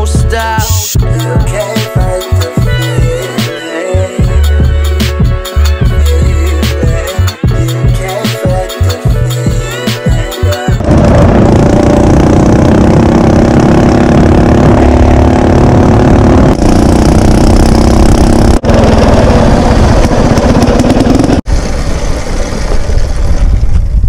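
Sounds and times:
small engine running: 10.8s - 23.9s
wind on microphone: 17.7s - 24.0s.

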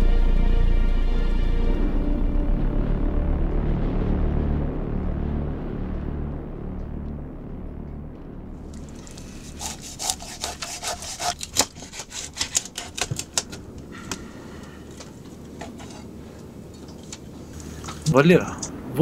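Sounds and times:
faint steady background noise: 8.6s - 19.0s
sharp clicks and scraping: 8.8s - 16.2s.

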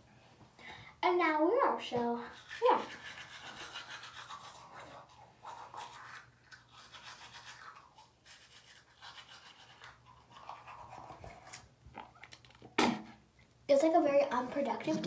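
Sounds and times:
toothbrush scrubbing teeth: 2.2s - 12.2s.

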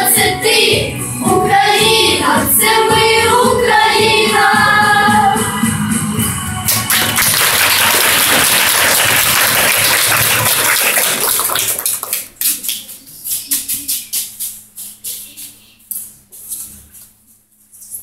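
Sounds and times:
audience applauding: 6.7s - 12.8s.

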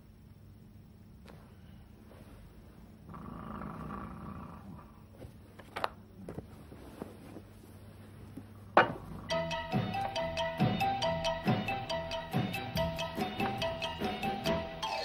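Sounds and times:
quilt rustling: 1.2s - 3.1s, 5.1s - 9.2s
growl-like rumble: 3.0s - 5.1s.

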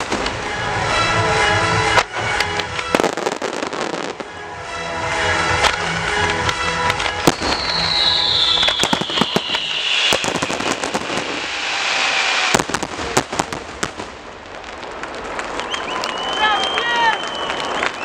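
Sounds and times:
fireworks bangs and crackle: 0.0s - 1.0s, 1.8s - 4.4s, 5.0s - 18.0s
falling firework whistle: 7.0s - 13.6s, 15.3s - 18.0s.

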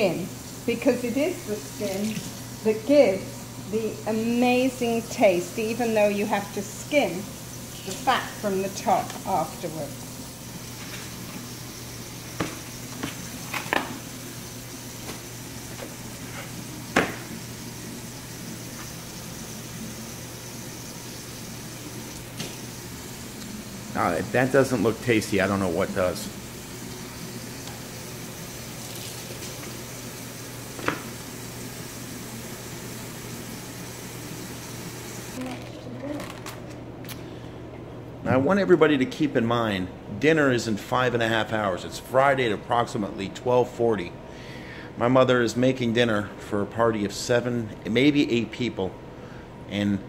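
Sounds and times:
steady background hum: 0.0s - 50.0s
plastic wrapping rustling: 35.4s - 36.8s.

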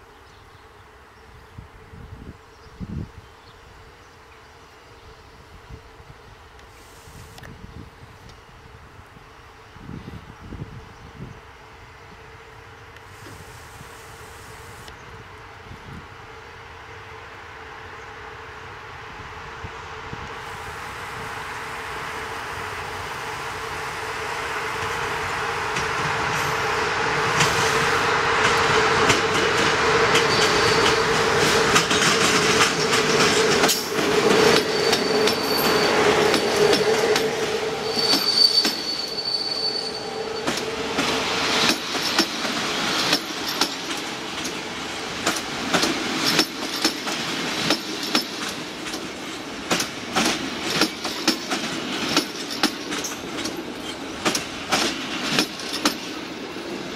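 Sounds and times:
electric train passing: 3.6s - 56.9s
wheels clicking over rail joints: 28.4s - 38.8s, 40.4s - 56.9s
wheel squeals: 30.2s - 31.2s, 33.7s - 40.9s.

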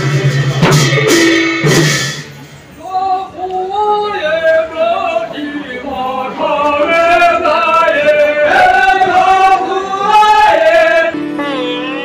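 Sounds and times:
voices singing a chant-like melody: 2.8s - 12.0s.

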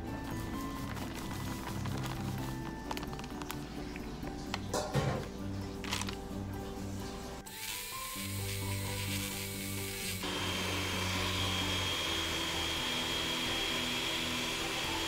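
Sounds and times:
background music: 0.0s - 15.0s
electric hand mixer whining: 7.5s - 15.0s.

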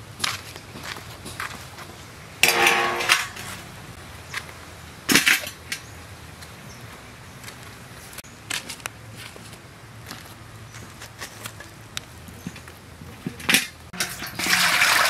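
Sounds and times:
metal bowl clanging on concrete: 2.4s - 3.6s, 13.3s - 15.0s
metal tray clanking: 2.4s - 3.6s, 13.3s - 14.8s.

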